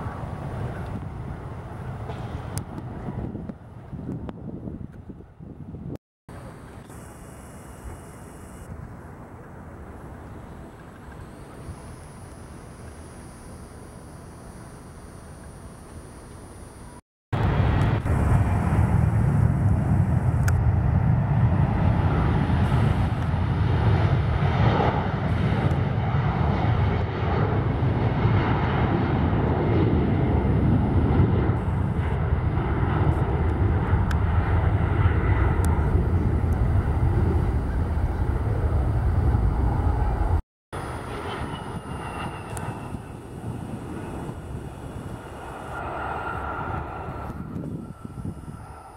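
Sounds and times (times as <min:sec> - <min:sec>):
jet engine roar on runway: 0:00.0 - 0:05.5, 0:06.3 - 0:48.9
jet landing: 0:00.0 - 0:48.9.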